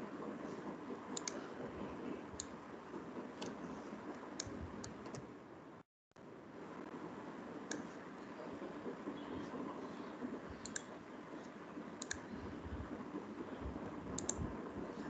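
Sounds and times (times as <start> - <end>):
background hiss: 0.0 - 15.0
computer mouse clicking: 1.1 - 1.5, 3.4 - 5.2, 7.7 - 7.9, 10.6 - 12.3, 14.2 - 14.5.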